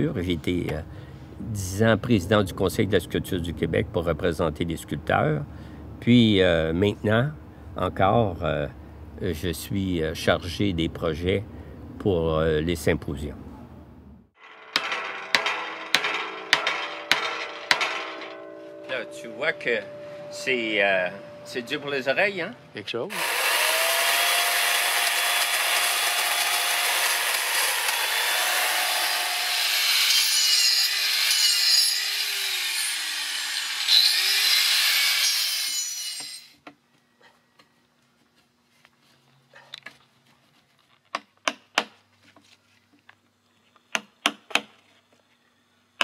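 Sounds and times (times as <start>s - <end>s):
angle grinder grinding wood: 23.1s - 36.5s.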